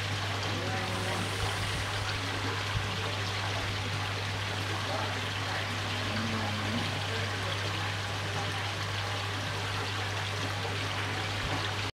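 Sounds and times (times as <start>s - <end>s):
low steady hum: 0.0s - 11.9s
running water rushing: 0.0s - 11.9s.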